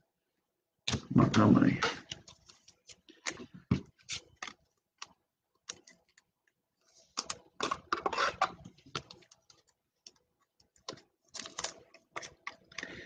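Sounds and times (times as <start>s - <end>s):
paper cards clicking and snapping: 2.0s - 6.3s, 7.1s - 13.0s.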